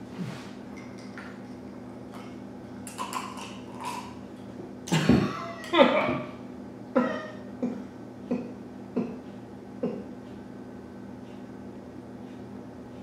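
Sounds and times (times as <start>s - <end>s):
steady low hum: 0.0s - 13.0s
man's stifled laughter: 5.0s - 6.3s.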